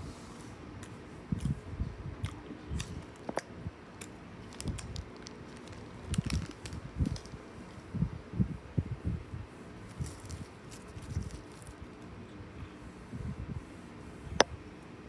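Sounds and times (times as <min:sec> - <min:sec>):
person chewing cookie: 0:00.8 - 0:01.6, 0:02.2 - 0:03.4.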